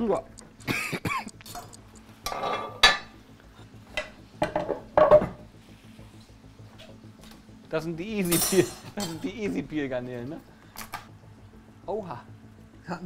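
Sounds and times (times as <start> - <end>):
utensils clinking on plates and pans: 2.3 - 3.1, 8.2 - 9.2.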